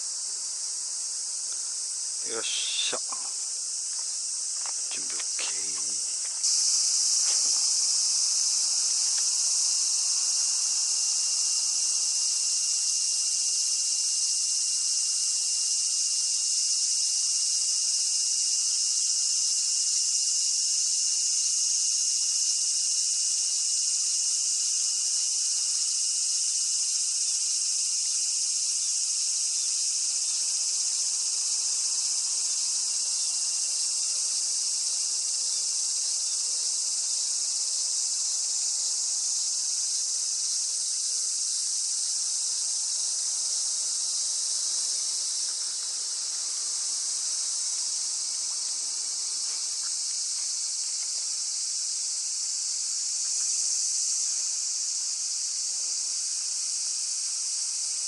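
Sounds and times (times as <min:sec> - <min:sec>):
cicadas droning: 0:00.0 - 0:58.0.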